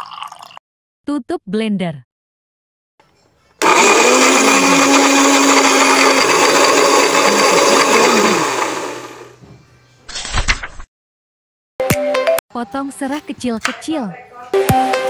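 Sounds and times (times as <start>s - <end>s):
electric blender grinding: 3.6s - 9.4s.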